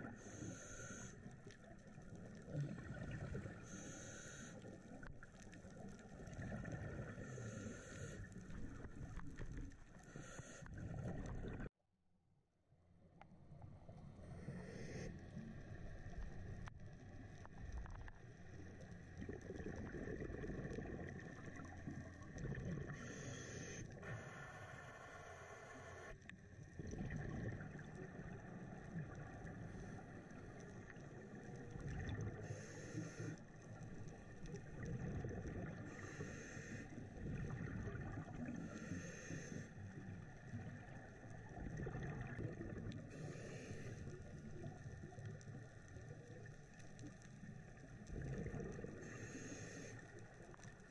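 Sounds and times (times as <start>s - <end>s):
scuba regulator breathing: 0.0s - 1.4s, 3.6s - 4.8s, 7.1s - 8.6s, 10.0s - 10.8s, 14.3s - 15.2s, 22.9s - 26.2s, 32.4s - 33.4s, 35.8s - 37.1s, 38.5s - 39.9s, 43.0s - 44.2s, 48.8s - 50.3s
underwater rumble: 0.0s - 11.7s, 12.9s - 50.9s.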